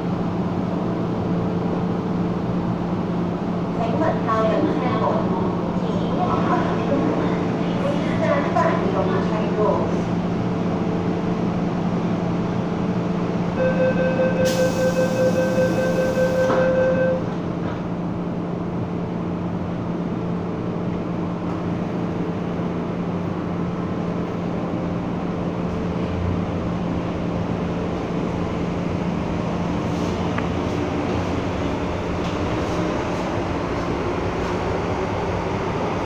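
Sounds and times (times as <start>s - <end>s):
train equipment hum: 0.0s - 36.0s
rapid door warning beeps: 13.6s - 17.2s.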